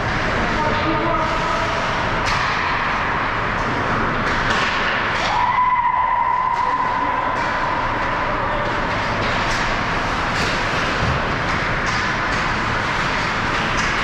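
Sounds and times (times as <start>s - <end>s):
hockey sticks and puck clicking: 2.2s - 5.5s, 6.3s - 14.0s
skates scraping on ice: 7.7s - 14.0s.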